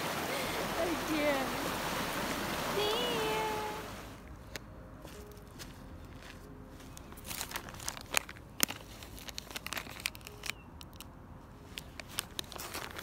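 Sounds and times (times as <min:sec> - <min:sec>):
plastic packets crinkling: 0:06.9 - 0:13.0.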